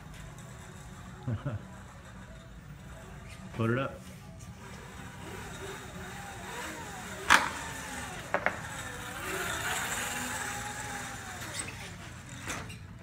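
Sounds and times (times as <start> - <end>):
electric motor whining: 4.5 - 12.7.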